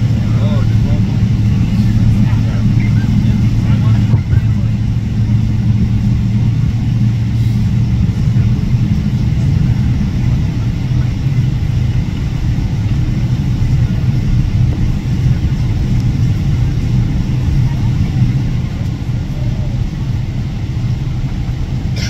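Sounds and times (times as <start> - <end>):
airplane cabin engine rumble: 0.0 - 22.0.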